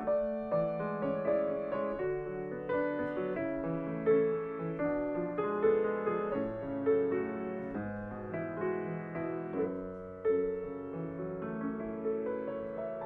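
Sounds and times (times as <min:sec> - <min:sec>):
solo classical piano: 0:00.0 - 0:13.0.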